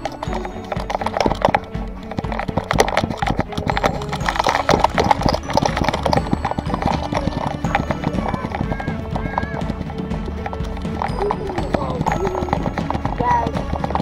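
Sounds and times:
camera rattling on running dog: 0:00.0 - 0:14.0.

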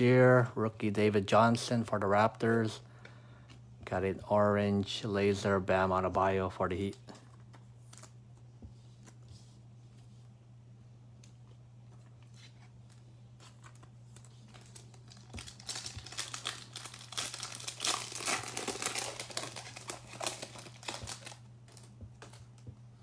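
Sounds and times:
plastic wrapper crackling: 0:13.5 - 0:22.7.

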